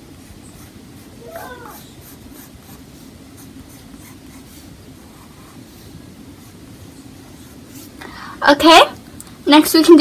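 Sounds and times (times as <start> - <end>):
steady low hum: 0.0 - 10.0
pencil scratching on paper: 0.2 - 6.6.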